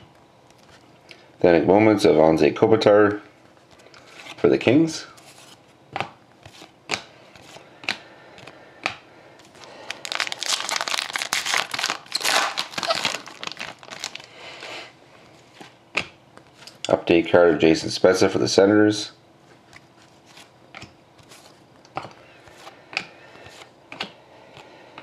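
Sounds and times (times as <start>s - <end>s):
foil wrapper tearing and crinkling: 9.6s - 14.3s.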